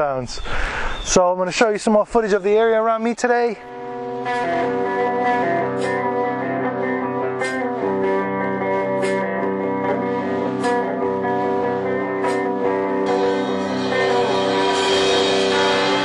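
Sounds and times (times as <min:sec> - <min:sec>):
guitar music with light beat: 0:03.7 - 0:16.0.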